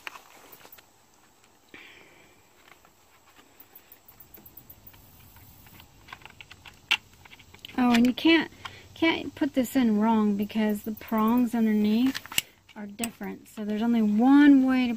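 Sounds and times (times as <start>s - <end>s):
plastic scraping: 5.0s - 8.8s
light plastic clicking: 5.6s - 8.8s.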